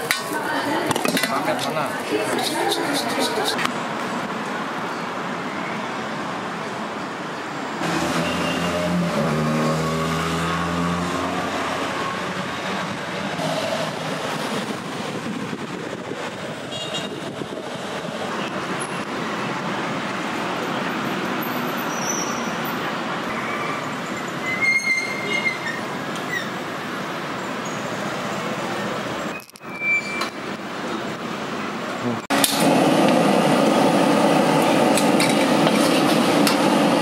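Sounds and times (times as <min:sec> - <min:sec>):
road noise: 0:00.0 - 0:37.0
vehicle engine passing: 0:07.8 - 0:15.3.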